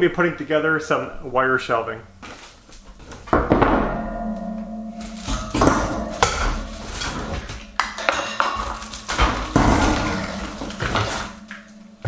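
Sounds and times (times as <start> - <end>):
metal shelving clinking: 3.0 - 12.0
sharp metal knocks: 3.3 - 12.0
struck metal pole ringing: 3.4 - 12.0.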